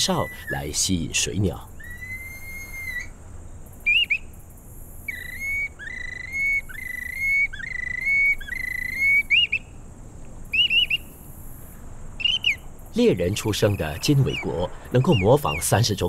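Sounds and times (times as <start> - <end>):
bamboo bird whistle: 0.0 - 0.6, 1.8 - 3.1, 3.9 - 4.2, 5.1 - 9.7, 10.5 - 11.1, 12.2 - 12.6, 14.1 - 15.7.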